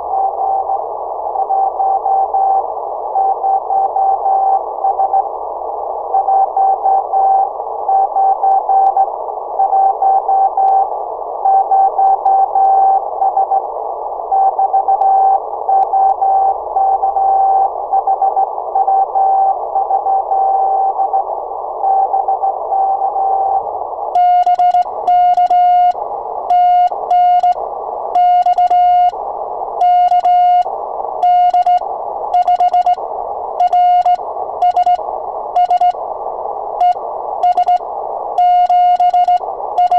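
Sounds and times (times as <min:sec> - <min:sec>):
receiver hiss: 0:00.0 - 0:39.9
morse code tone: 0:24.2 - 0:27.6, 0:28.2 - 0:29.2, 0:29.8 - 0:33.0, 0:33.6 - 0:35.0, 0:35.6 - 0:36.0, 0:36.8 - 0:37.8, 0:38.4 - 0:39.9
sidetone morse dots and dashes: 0:24.2 - 0:27.6, 0:28.2 - 0:29.2, 0:29.8 - 0:33.0, 0:33.6 - 0:35.0, 0:35.6 - 0:36.0, 0:36.8 - 0:37.8, 0:38.4 - 0:39.9.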